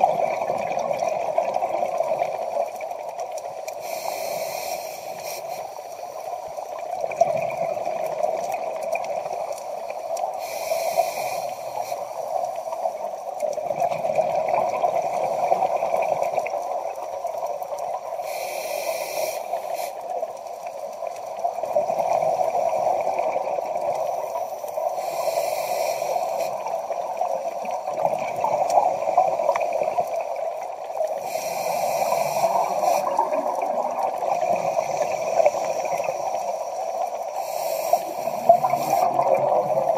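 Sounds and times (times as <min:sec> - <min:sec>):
underwater hum: 0:00.0 - 0:39.9
scuba regulator hissing breaths: 0:03.7 - 0:06.3, 0:09.7 - 0:13.0, 0:18.2 - 0:20.2, 0:24.0 - 0:27.0, 0:31.0 - 0:39.9
bubbling of exhaled air: 0:24.9 - 0:39.9.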